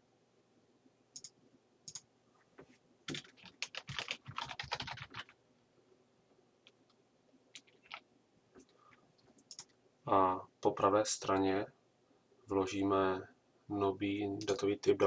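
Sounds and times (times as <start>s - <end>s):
computer keyboard typing: 3.1s - 5.4s, 7.5s - 8.0s, 9.4s - 9.7s, 14.4s - 14.6s.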